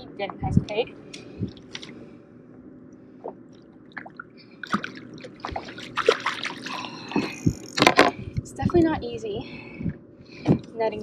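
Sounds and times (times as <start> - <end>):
steady low hum: 0.0 - 11.0
fish splashing in water: 3.9 - 7.1.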